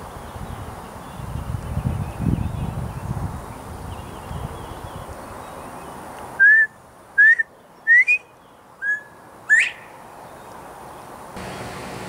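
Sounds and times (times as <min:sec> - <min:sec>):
bird whistling: 0:06.4 - 0:10.0.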